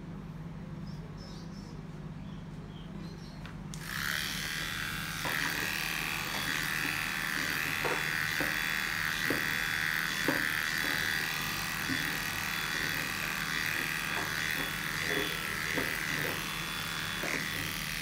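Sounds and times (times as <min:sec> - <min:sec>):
electric hair clipper buzzing: 0:03.7 - 0:18.0.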